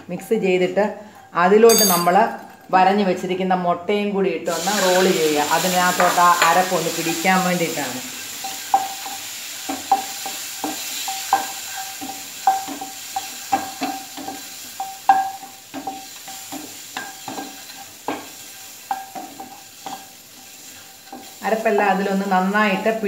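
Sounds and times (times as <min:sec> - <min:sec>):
oil sizzling: 0:04.4 - 0:23.0
spatula knocking metal pan: 0:08.4 - 0:20.0.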